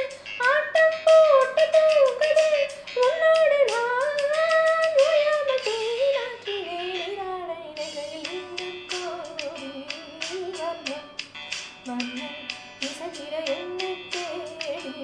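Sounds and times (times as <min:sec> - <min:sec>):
woman singing: 0:00.0 - 0:11.2, 0:11.8 - 0:15.0
backing track with clicking percussion: 0:01.0 - 0:06.0.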